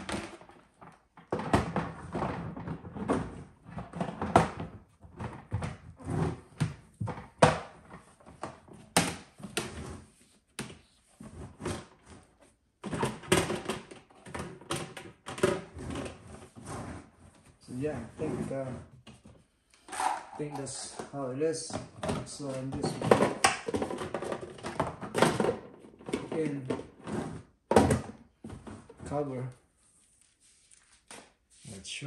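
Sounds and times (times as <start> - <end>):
plastic parts knocking and clicking: 0.0 - 9.8, 10.6 - 16.2, 19.0 - 29.1.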